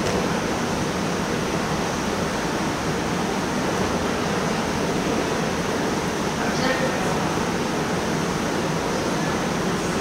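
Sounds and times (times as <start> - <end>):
gymnasium background din: 0.0 - 0.8.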